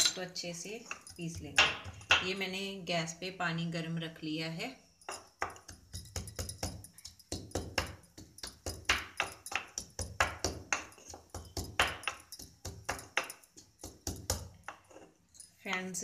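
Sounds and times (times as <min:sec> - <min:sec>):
pestle pounding in wooden mortar: 0:00.9 - 0:02.3, 0:05.1 - 0:14.9.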